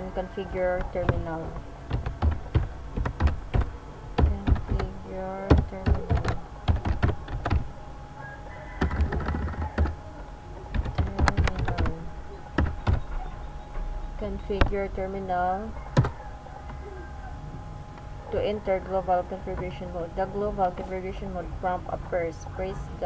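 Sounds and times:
computer keyboard typing: 0:00.5 - 0:07.7, 0:08.8 - 0:10.0, 0:10.7 - 0:13.2.

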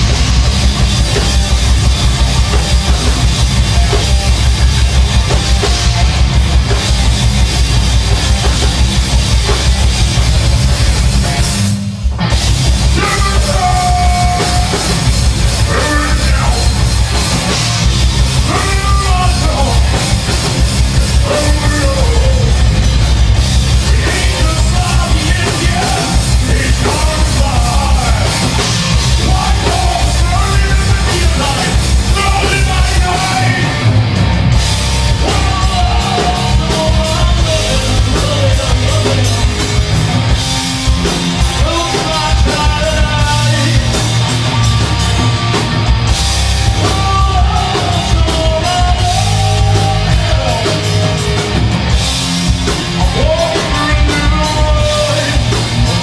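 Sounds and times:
heavy metal band playing live: 0:00.0 - 0:56.0
man singing: 0:12.8 - 0:16.8, 0:18.4 - 0:20.1, 0:21.0 - 0:22.7, 0:23.7 - 0:28.6, 0:29.2 - 0:33.9, 0:35.1 - 0:39.9, 0:41.5 - 0:44.1, 0:46.7 - 0:51.4, 0:53.0 - 0:56.0.

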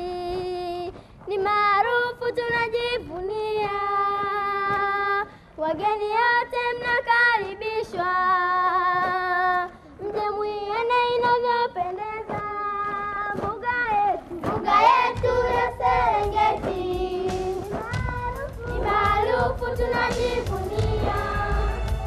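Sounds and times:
children singing in unison: 0:14.5 - 0:22.0.

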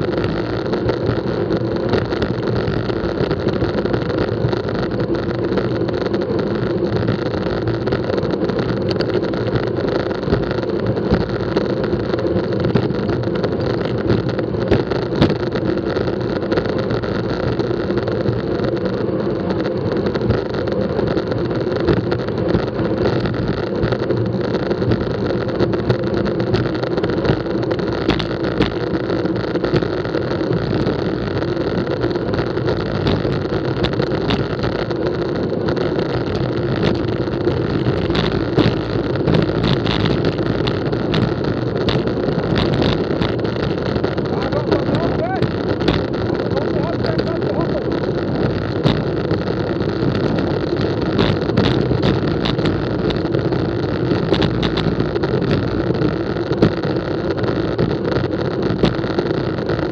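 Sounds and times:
road rumble: 0:00.0 - 0:59.9
wind rush on microphone: 0:00.0 - 0:59.9
small knocks: 0:44.8 - 0:46.3.

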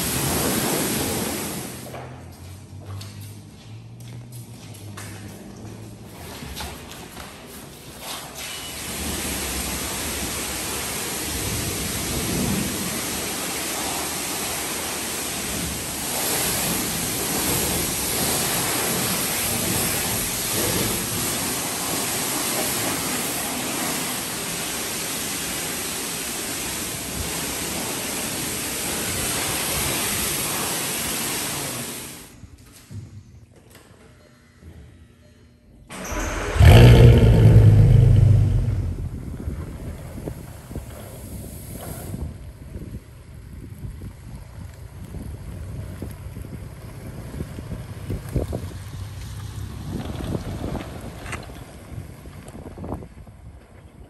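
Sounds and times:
pressure washer spraying water: 0:00.0 - 0:01.9, 0:08.3 - 0:32.3.

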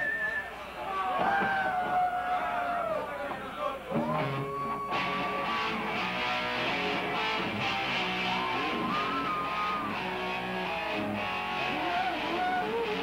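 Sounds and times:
electric guitar sliding notes: 0:04.0 - 0:13.0.

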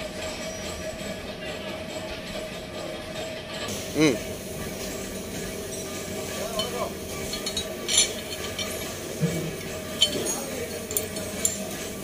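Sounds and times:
metal parts clinking: 0:05.6 - 0:12.0.

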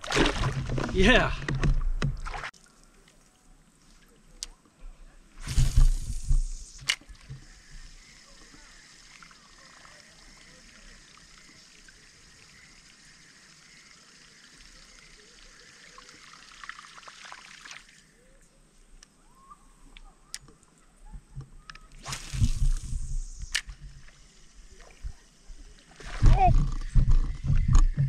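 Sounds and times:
faint chirps: 0:04.8 - 0:16.9, 0:17.8 - 0:28.0
steady high hiss: 0:05.3 - 0:17.1, 0:21.6 - 0:26.1
water trickling: 0:05.6 - 0:18.3.

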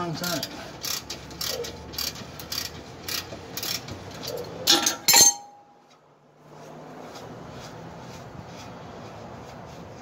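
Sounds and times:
metallic clacks: 0:00.0 - 0:06.0
ratchet wrench clicking: 0:00.2 - 0:05.2.

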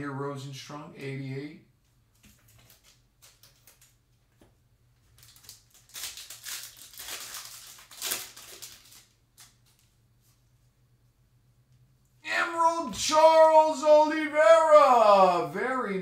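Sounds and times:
foil pack tearing and crinkling: 0:05.1 - 0:09.9.

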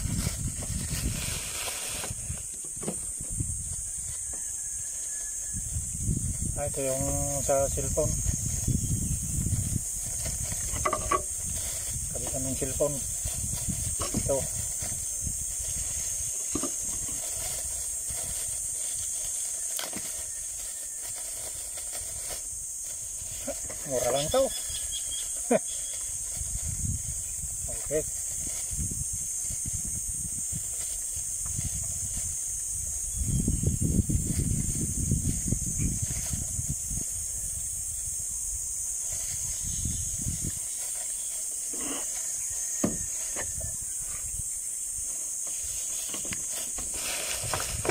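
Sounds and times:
plastic wrapping rustling: 0:00.0 - 0:02.5
wind rumble on microphone: 0:00.0 - 0:19.4, 0:20.1 - 0:40.8, 0:42.3 - 0:45.0, 0:45.6 - 0:47.9
high-pitched insect hiss: 0:00.0 - 0:47.9
rustle: 0:00.0 - 0:47.9.

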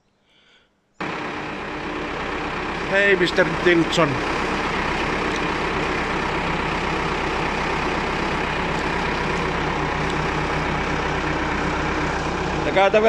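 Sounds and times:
tractor diesel engine running: 0:01.0 - 0:13.0.

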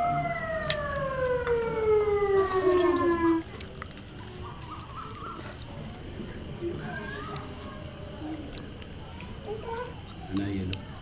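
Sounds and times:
siren winding down: 0:00.0 - 0:03.5.

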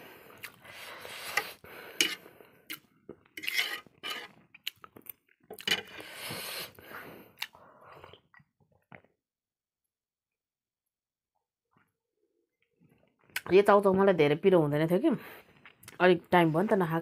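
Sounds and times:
fork scraping ceramic plate: 0:01.2 - 0:04.4.

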